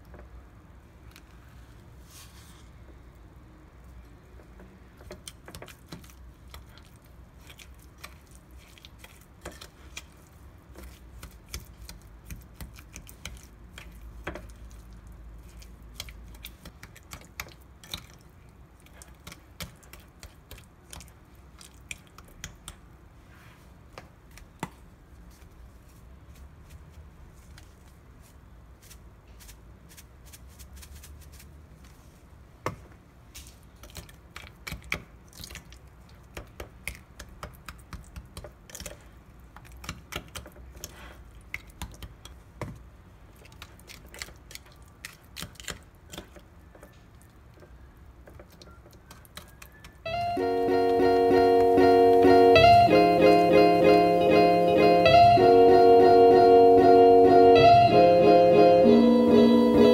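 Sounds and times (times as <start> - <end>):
spoon mashing soft mixture: 4.4 - 23.0, 32.0 - 50.0.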